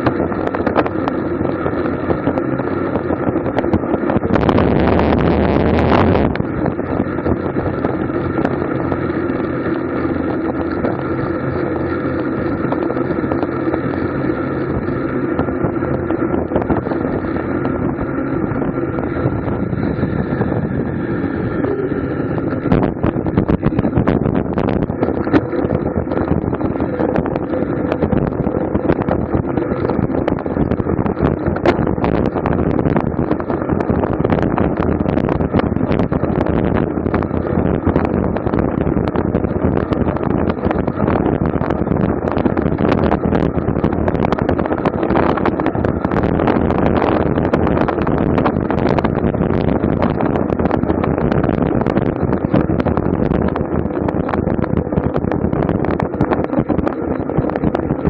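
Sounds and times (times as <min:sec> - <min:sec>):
wind and road noise: 0:00.0 - 0:58.0.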